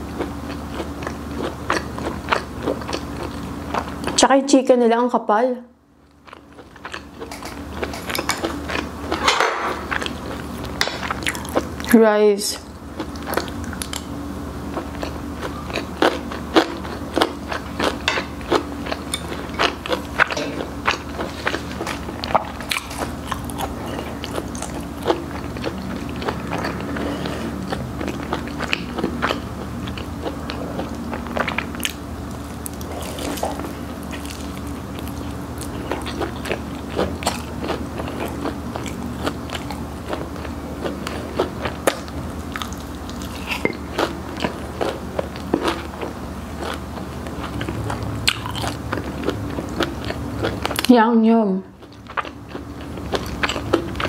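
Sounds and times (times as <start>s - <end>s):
crunching fried chicken: 12.8s - 50.9s, 51.8s - 54.0s.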